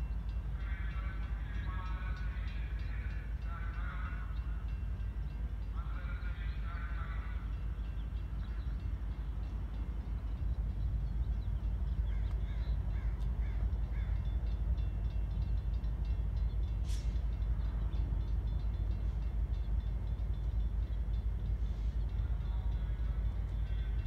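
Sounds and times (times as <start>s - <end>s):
low train rumble: 0.0s - 24.0s
crow cawing: 12.1s - 14.2s
sharp hiss: 16.8s - 17.2s.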